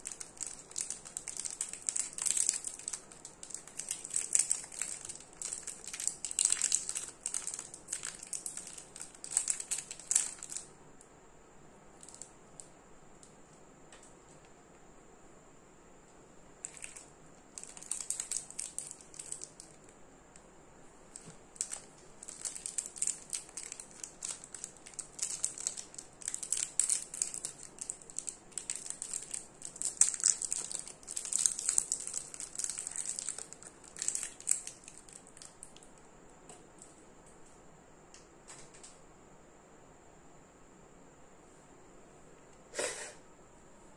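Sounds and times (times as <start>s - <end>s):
cellophane wrapper crinkling: 0.0s - 10.7s, 12.0s - 12.7s, 16.6s - 20.0s, 21.1s - 36.0s.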